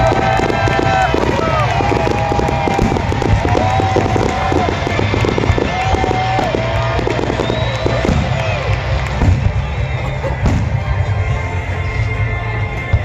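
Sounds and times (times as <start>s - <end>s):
fireworks popping and crackling: 0.0s - 13.0s.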